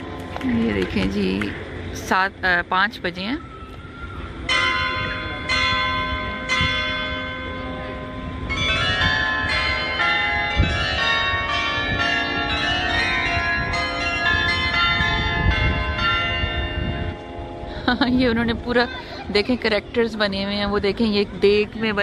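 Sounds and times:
church bells pealing: 4.4s - 22.0s.

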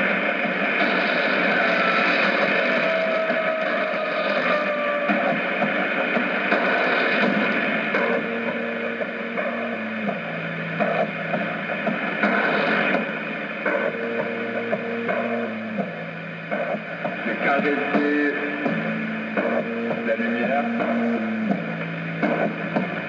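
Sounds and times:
radio static and noise: 0.0s - 23.0s
steady low tones: 5.4s - 23.0s.

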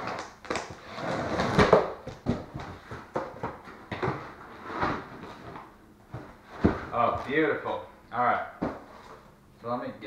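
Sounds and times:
cardboard and foam rustling: 0.0s - 7.5s.

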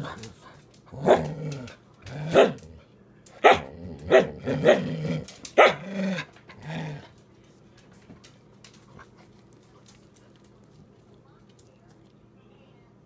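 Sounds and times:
dog barking and growling: 0.9s - 2.8s, 3.4s - 7.1s.

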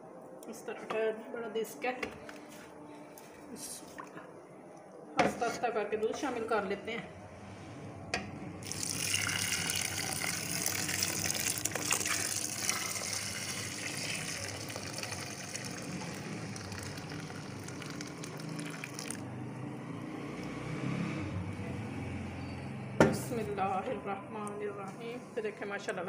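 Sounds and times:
milk pouring into a pot: 8.6s - 19.2s.

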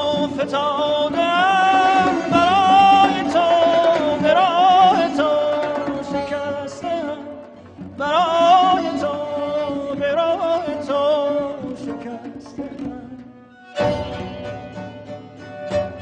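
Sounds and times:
ornamented melody with low accompaniment: 13.6s - 16.0s.

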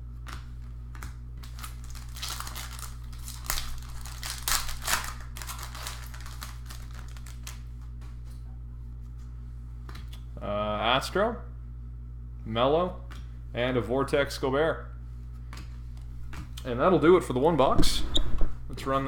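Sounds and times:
steady low hum: 0.0s - 19.0s
foil wrapper tearing and crinkling: 1.4s - 7.7s.

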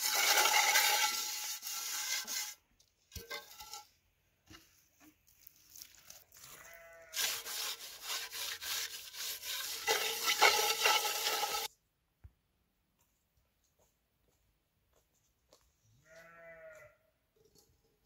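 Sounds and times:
hand scraping metal pot: 0.0s - 11.7s.

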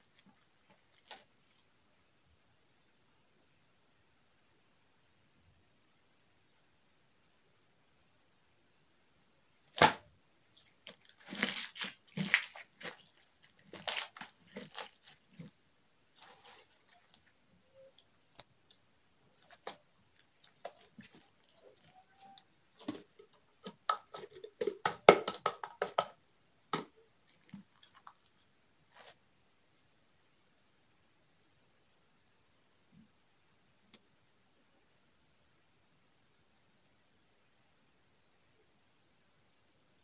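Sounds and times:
slime squelching and crackling: 0.0s - 1.8s, 9.7s - 18.0s, 19.2s - 25.9s, 27.2s - 29.2s.

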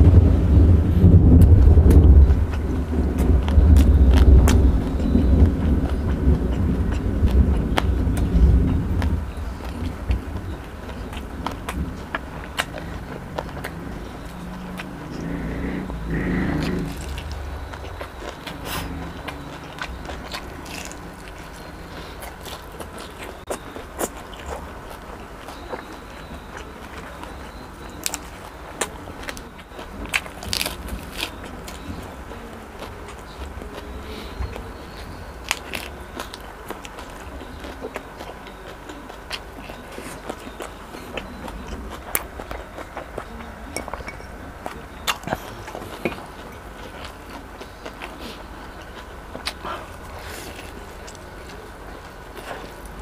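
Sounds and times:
thunder rumble: 0.0s - 21.2s
close chewing and crunching: 0.0s - 53.0s.

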